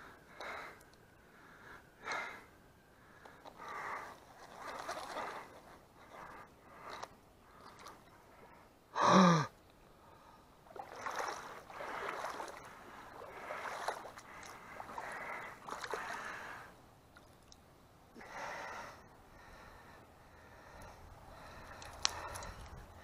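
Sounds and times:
breathy rustling noises: 0:00.0 - 0:08.8
person grunting: 0:09.0 - 0:09.5.

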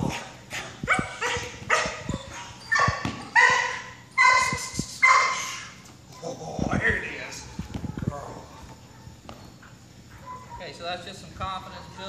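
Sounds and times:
dog barking high-pitched: 0:00.1 - 0:05.8.

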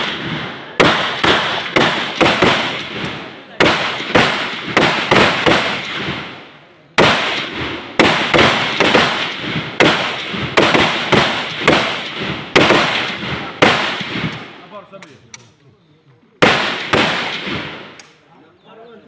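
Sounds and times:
rifle shots with echo: 0:00.0 - 0:14.8, 0:16.4 - 0:18.3.

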